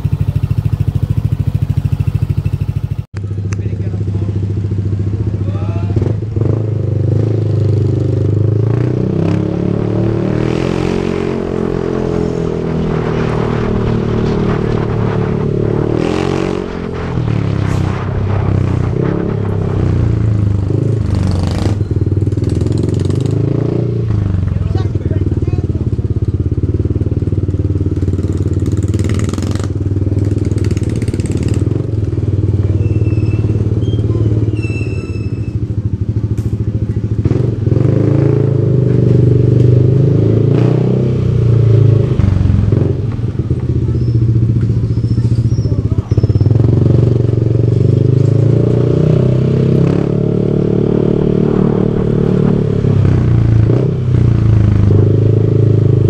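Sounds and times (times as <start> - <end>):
scooter engine running: 0.0 - 5.4.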